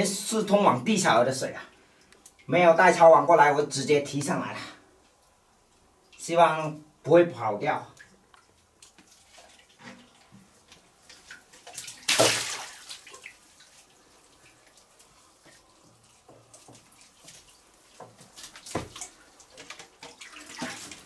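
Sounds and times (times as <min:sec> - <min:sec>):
water dripping: 0:01.6 - 0:02.6, 0:05.0 - 0:07.1, 0:07.8 - 0:21.0
water splashing: 0:08.0 - 0:21.0.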